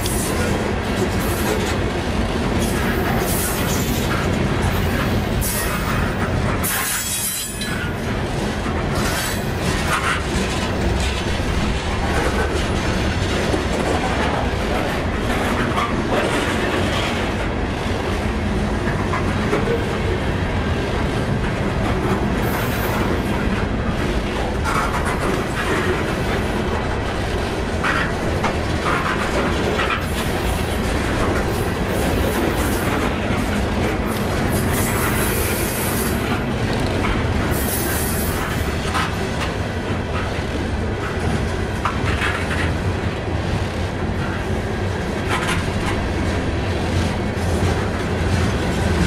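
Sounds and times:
train wheels rumbling on rails: 0.0 - 49.0
wheels clicking over rail joints: 21.4 - 35.6.

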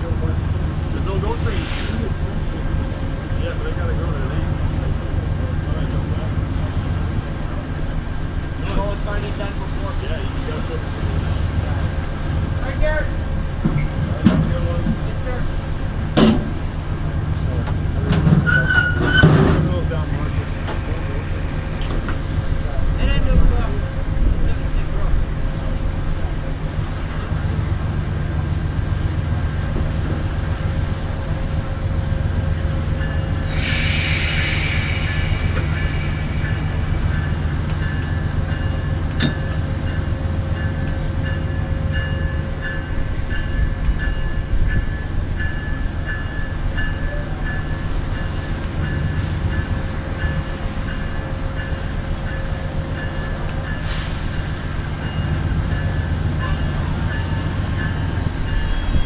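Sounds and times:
brief hiss: 1.4 - 2.1, 33.5 - 36.9
diesel locomotive idling: 19.8 - 59.0.

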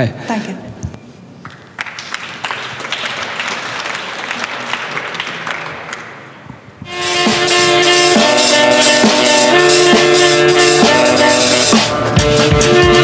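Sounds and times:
audience applauding: 1.4 - 6.5
loud music: 6.9 - 13.0.

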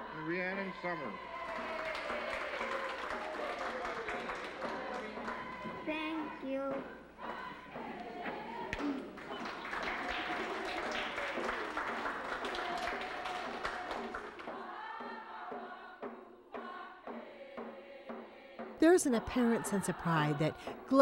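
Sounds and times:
singing: 0.0 - 21.0
audience clapping: 1.3 - 5.8, 8.7 - 14.6.

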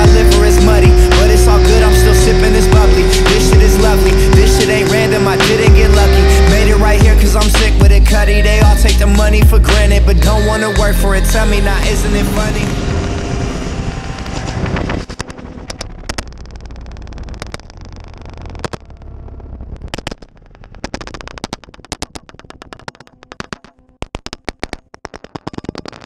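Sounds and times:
hip-hop music: 0.0 - 14.8
low rumble: 0.0 - 21.4
camera tumbling across road: 12.3 - 26.0.

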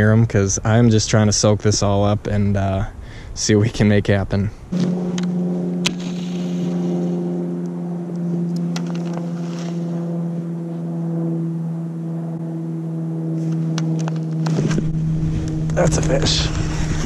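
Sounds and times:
steady hum: 4.6 - 17.0.

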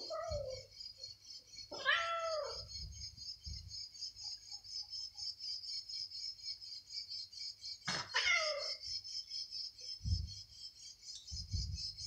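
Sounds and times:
insects chirring: 0.0 - 12.0
cat meowing: 1.7 - 2.6, 8.0 - 8.8.

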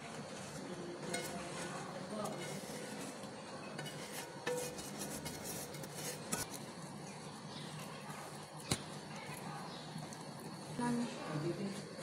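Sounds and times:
spoon scraping a plate: 1.0 - 6.6
spoon mashing on a plate: 3.7 - 6.5.

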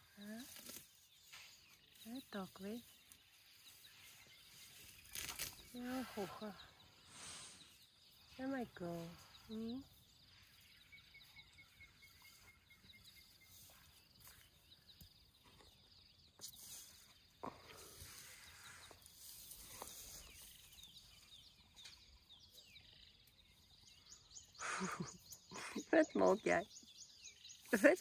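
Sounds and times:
elephant chewing grass: 0.0 - 8.0, 10.0 - 21.3.

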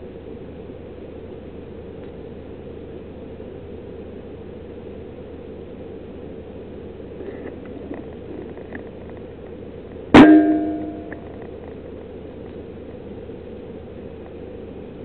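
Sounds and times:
brief metallic ringing: 10.2 - 11.3.

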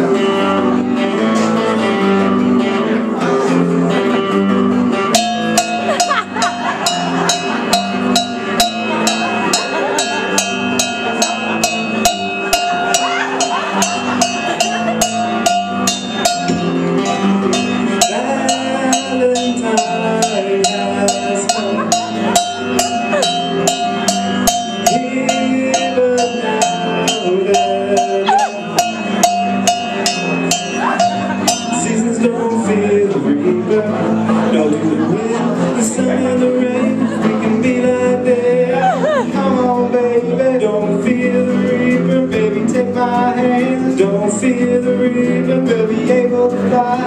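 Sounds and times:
electric guitar lead: 0.0 - 34.5, 38.2 - 39.6
cowbell beat: 5.1 - 33.0.

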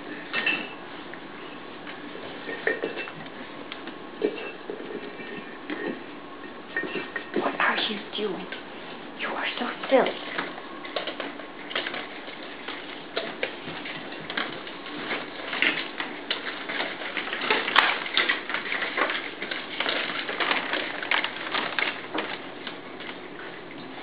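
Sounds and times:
puppy claws clicking on hard floor: 9.8 - 24.0.

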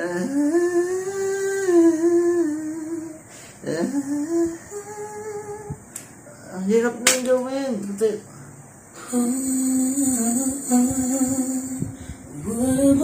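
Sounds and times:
woman singing a cappella: 0.0 - 6.0, 9.0 - 13.0.

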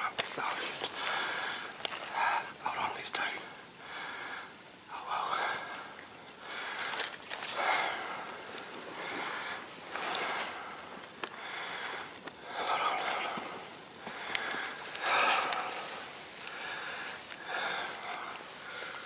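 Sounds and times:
person breathing noisily: 1.0 - 2.6, 3.8 - 5.8, 6.4 - 19.0
faint clicks: 12.1 - 19.0.

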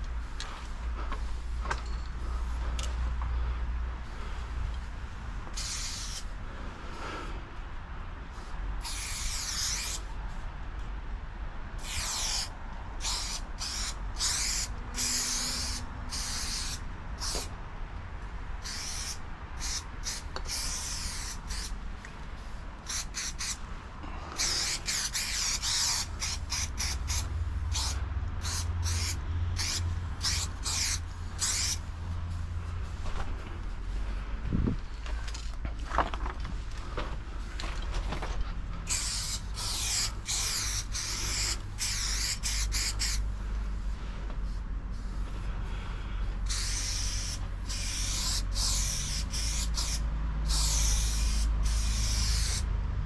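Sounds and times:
steady low rumble: 0.0 - 9.4, 10.0 - 53.0
spray-paint can hissing: 5.5 - 6.3, 8.8 - 10.1, 11.8 - 17.5, 18.6 - 21.8, 22.8 - 23.6, 24.4 - 31.8, 38.9 - 43.2, 46.4 - 52.7.

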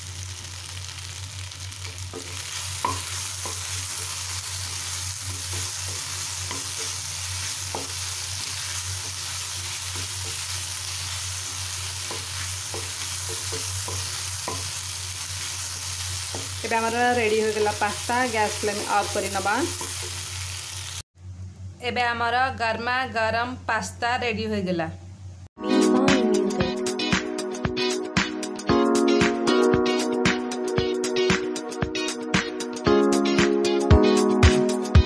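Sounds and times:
frying sizzle: 0.0 - 21.1
spatula scraping a pan: 2.2 - 15.0.

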